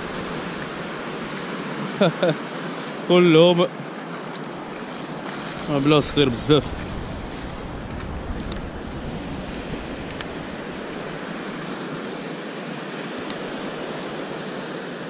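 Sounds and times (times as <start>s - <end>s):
wind rumble on microphone: 0.0s - 2.0s, 4.5s - 12.4s
surf washing on beach: 0.0s - 15.0s
light clicks: 8.4s - 8.6s, 13.2s - 13.4s.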